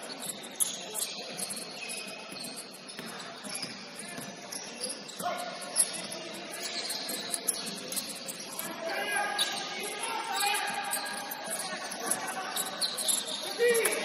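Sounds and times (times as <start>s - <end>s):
sneakers squeaking on floor: 0.0s - 14.0s
basketball bouncing: 3.0s - 4.3s.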